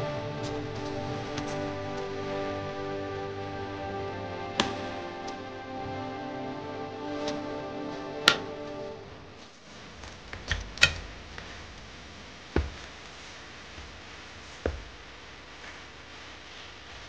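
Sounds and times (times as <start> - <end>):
background music: 0.0 - 9.5.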